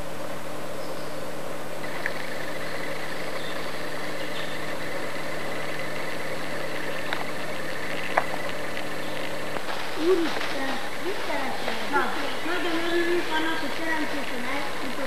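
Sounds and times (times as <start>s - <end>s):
camcorder hum and hiss: 0.0s - 15.0s.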